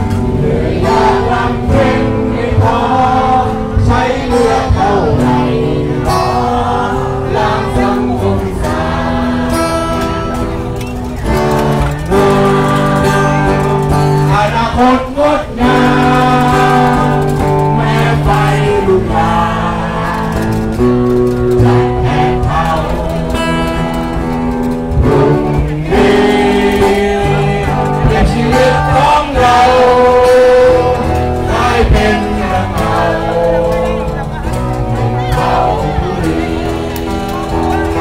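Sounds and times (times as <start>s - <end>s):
guitar accompaniment: 0.0s - 38.0s
person singing: 12.0s - 20.9s, 25.1s - 38.0s.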